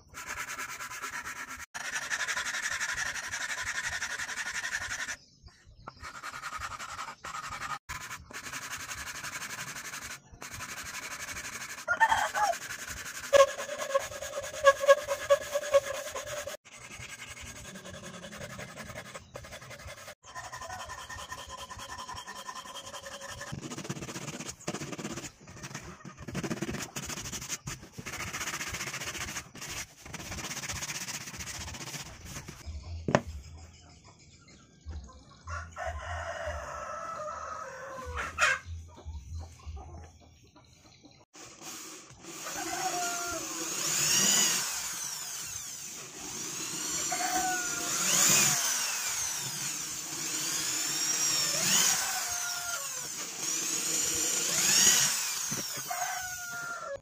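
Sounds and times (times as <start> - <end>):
sandpaper rubbing wood: 0.0 - 5.2, 6.0 - 32.6
hand filing wood: 0.1 - 5.2, 6.0 - 32.6
rooster crowing: 11.9 - 12.6, 35.5 - 38.6, 42.4 - 43.4, 47.0 - 48.0, 55.7 - 57.0
chickens clucking: 36.9 - 41.2.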